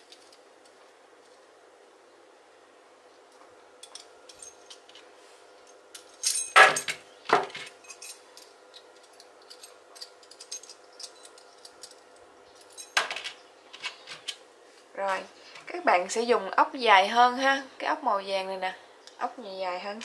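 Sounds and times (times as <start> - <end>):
small metal fittings clinking: 7.8 - 12.0.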